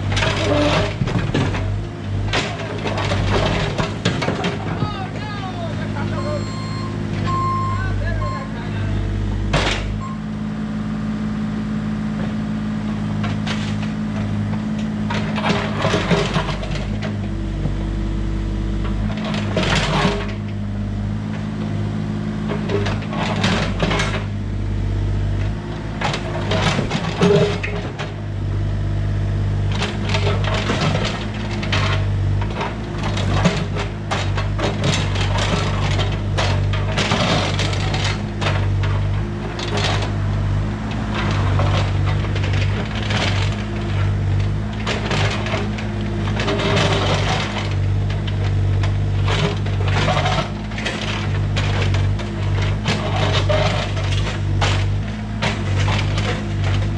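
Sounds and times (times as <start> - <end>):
excavator diesel engine running: 0.0 - 56.9
stones clattering and scraping: 41.0 - 56.9.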